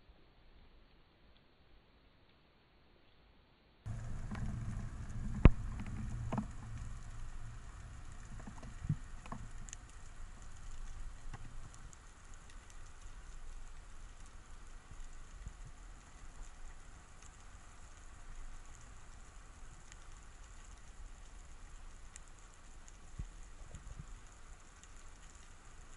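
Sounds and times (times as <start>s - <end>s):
low rumble: 3.9s - 13.6s
underwater crackling patter: 3.9s - 25.9s.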